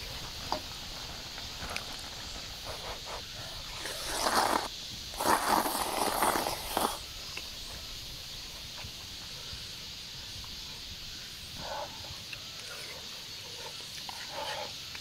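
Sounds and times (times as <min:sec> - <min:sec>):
noodles being slurped: 0:03.6 - 0:07.0.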